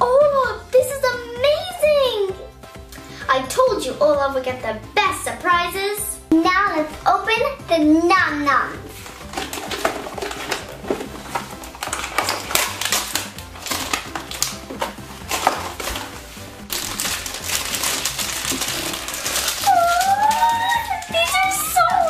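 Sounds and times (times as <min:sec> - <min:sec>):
background music: 0:00.0 - 0:22.0
plastic wrappers crinkling and tearing: 0:08.9 - 0:22.0.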